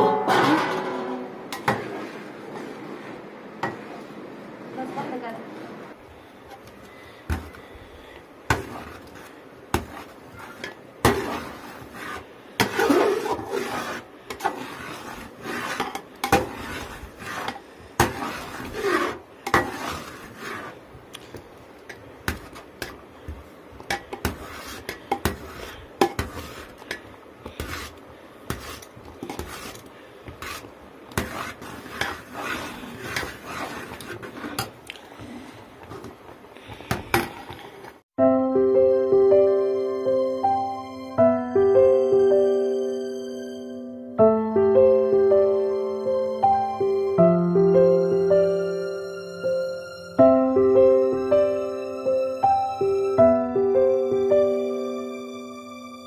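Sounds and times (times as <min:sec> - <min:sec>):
ladle scraping metal pot: 0:08.5 - 0:20.8, 0:23.9 - 0:34.8.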